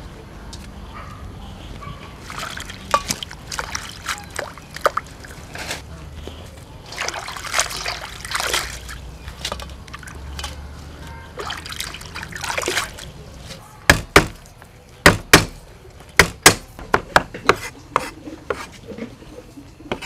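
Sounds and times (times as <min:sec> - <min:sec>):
water sloshing in metal basin: 0:02.2 - 0:05.8, 0:06.8 - 0:13.7
water trickling off greens: 0:02.2 - 0:13.6.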